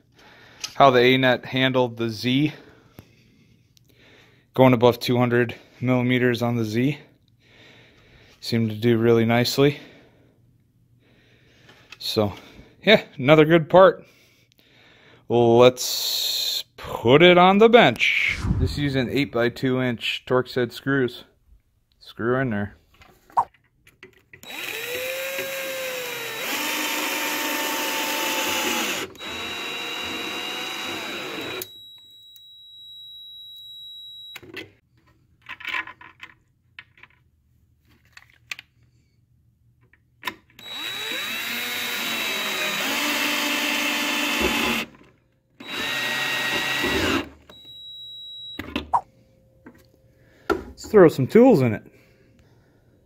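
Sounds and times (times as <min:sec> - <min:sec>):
cordless drill driving screws: 0:24.4 - 0:32.0, 0:40.6 - 0:45.0, 0:45.6 - 0:47.9.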